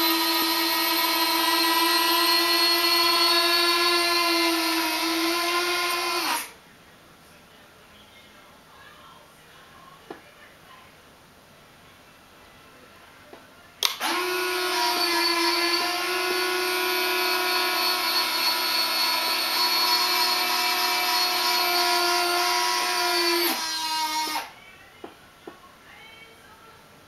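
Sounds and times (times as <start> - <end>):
electric motor whine: 0.0 - 6.6, 13.8 - 24.5.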